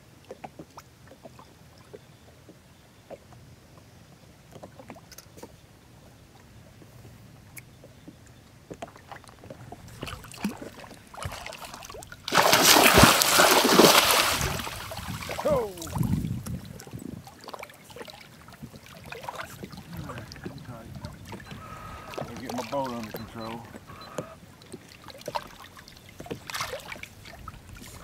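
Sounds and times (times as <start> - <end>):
water lapping against boat: 0.0 - 28.0
water gurgling: 8.9 - 28.0
loud rush of splashing water: 10.4 - 16.9.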